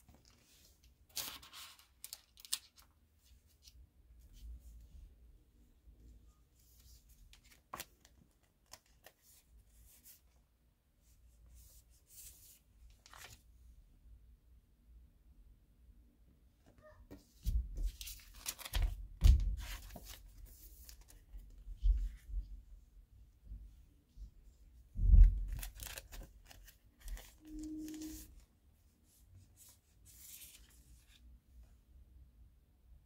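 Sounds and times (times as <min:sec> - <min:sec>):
photo cards rustling and sliding: 0:00.0 - 0:03.8, 0:06.7 - 0:10.3, 0:17.8 - 0:22.2, 0:25.2 - 0:28.4, 0:29.6 - 0:31.3.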